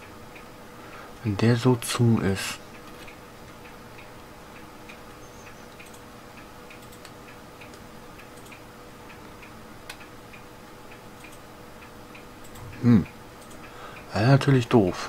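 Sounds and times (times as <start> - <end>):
faint regular ticking: 0.0 - 15.0
low steady hum: 0.0 - 15.0.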